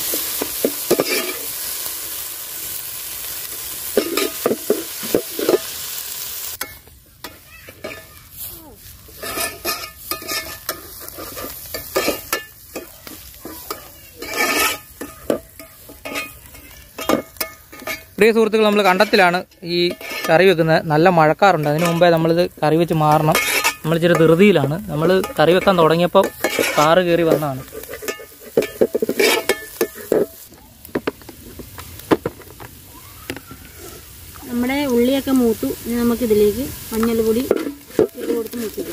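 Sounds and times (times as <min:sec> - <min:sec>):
food sizzling in oil: 0:00.0 - 0:38.9
metal ladle scraping pot: 0:00.1 - 0:01.5, 0:04.0 - 0:05.7, 0:06.6 - 0:08.2, 0:09.1 - 0:22.3, 0:22.9 - 0:30.5, 0:37.1 - 0:38.9.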